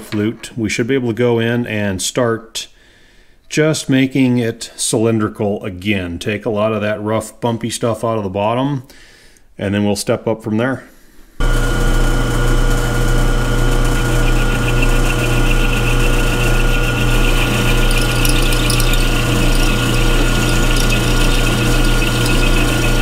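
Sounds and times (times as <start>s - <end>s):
milling machine motor hum: 11.4s - 23.0s
end mill chattering in metal: 13.6s - 23.0s.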